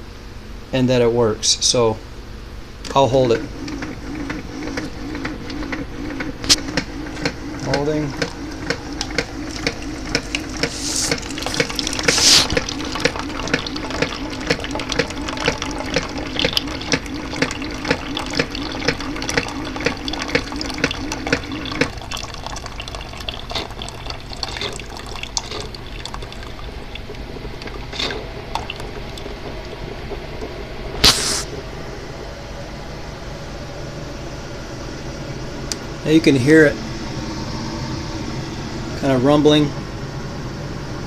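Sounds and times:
coffee maker pump humming: 2.7s - 41.0s
water pouring into cup: 7.4s - 29.4s.

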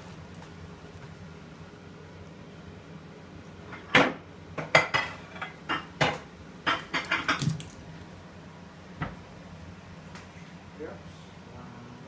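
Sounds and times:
dog claws clicking on wooden floor: 6.9s - 7.8s.

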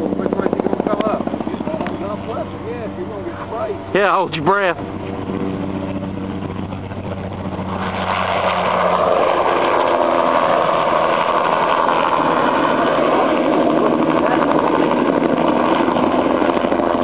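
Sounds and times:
helicopter passing overhead: 0.0s - 17.0s.

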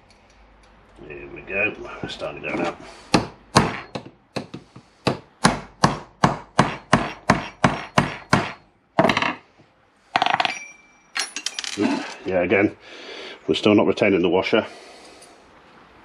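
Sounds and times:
hammer striking a metal punch: 3.1s - 9.4s.

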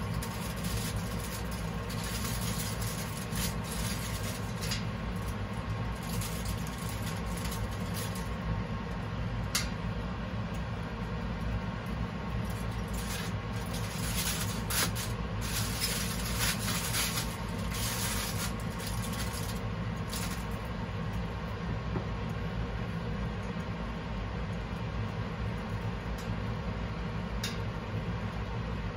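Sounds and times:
aluminium foil crinkling: 0.0s - 8.6s, 11.9s - 20.9s
steady low hum: 0.0s - 28.9s.

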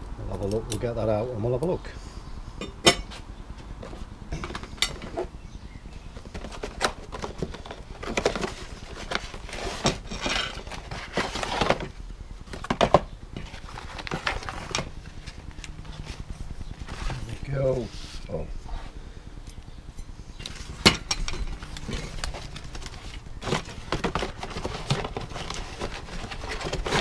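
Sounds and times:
cardboard and plastic rustling: 3.6s - 5.3s, 6.0s - 18.8s, 20.4s - 27.0s.

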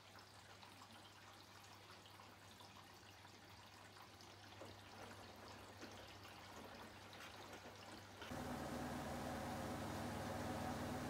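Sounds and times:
washing machine water splashing: 0.0s - 11.0s
low steady hum: 8.3s - 11.0s.

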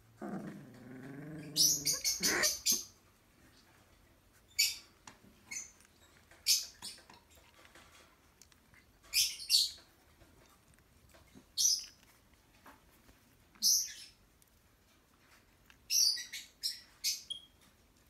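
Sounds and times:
puppies squeaking: 1.4s - 3.0s.

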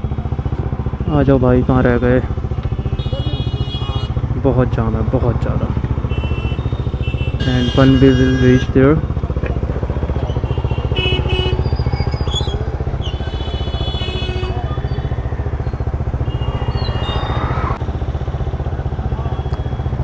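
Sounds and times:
motorcycle engine at low revs: 0.0s - 20.0s
traffic horns: 2.4s - 4.3s, 6.0s - 9.0s, 9.9s - 15.3s, 16.0s - 18.2s.

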